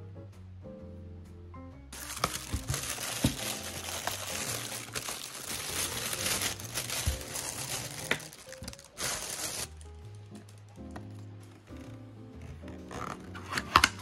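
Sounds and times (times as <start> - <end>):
plastic bag crinkling: 2.0 - 11.3.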